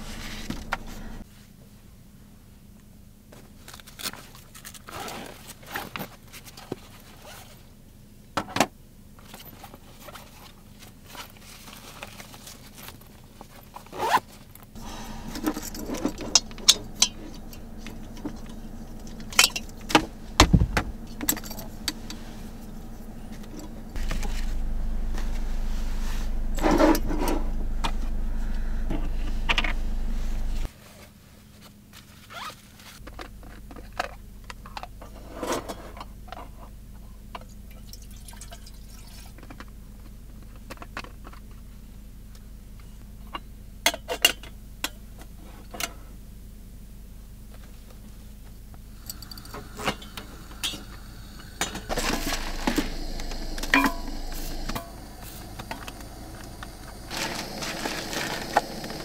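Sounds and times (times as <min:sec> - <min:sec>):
steady low hum: 0:00.0 - 0:01.3, 0:14.7 - 0:30.7, 0:44.6 - 0:59.0.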